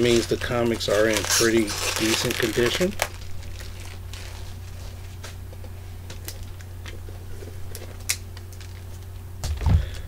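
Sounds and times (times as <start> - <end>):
bubble wrap crinkling: 0.0 - 5.3
steady low hum: 0.0 - 10.0.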